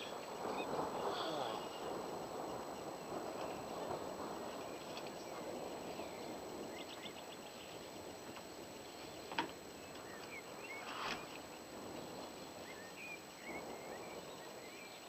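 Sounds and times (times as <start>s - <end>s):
steady background hiss: 0.0s - 15.0s
high chirping calls: 8.8s - 11.6s
brief rustle: 10.8s - 11.4s.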